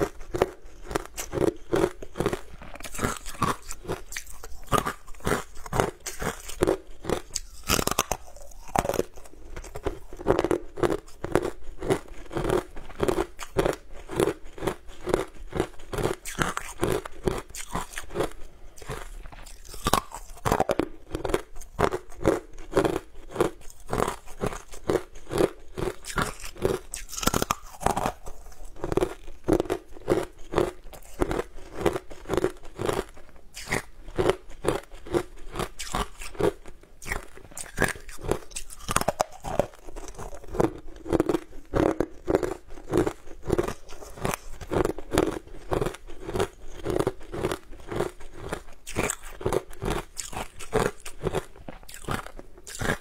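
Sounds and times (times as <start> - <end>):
crunching and chewing frozen food: 0.0 - 53.0.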